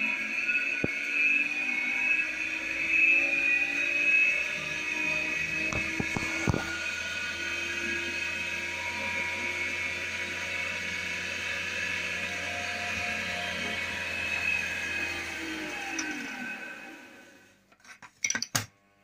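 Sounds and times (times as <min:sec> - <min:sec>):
spin dryer whining: 0:00.0 - 0:17.6.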